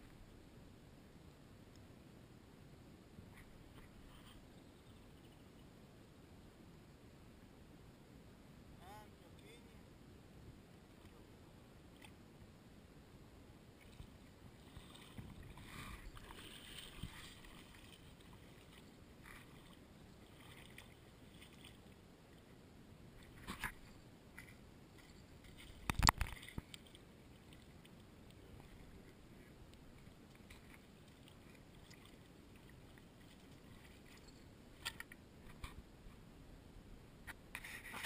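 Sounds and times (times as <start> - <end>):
faint water sounds: 0.0 - 38.0.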